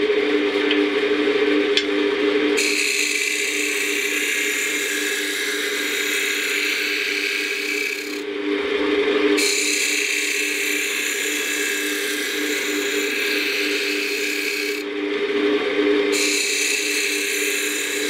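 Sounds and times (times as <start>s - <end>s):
lathe motor humming: 0.0s - 18.0s
gouge shaving spinning wood: 2.6s - 8.3s, 9.4s - 14.9s, 16.2s - 18.0s.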